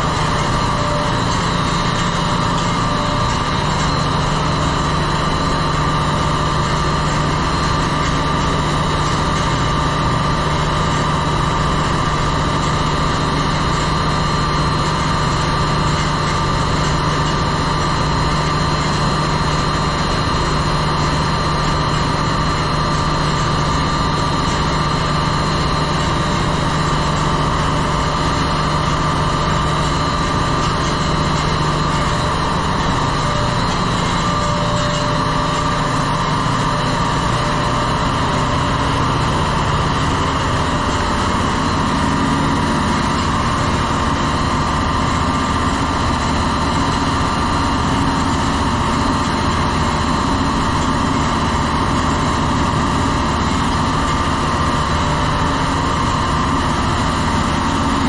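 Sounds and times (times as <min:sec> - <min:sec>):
engine room machinery drone: 0:00.0 - 0:58.0
high machinery whine: 0:00.0 - 0:58.0.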